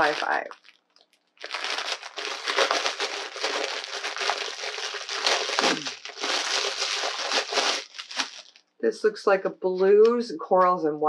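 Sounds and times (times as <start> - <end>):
packaging crinkling: 0.0 - 8.8.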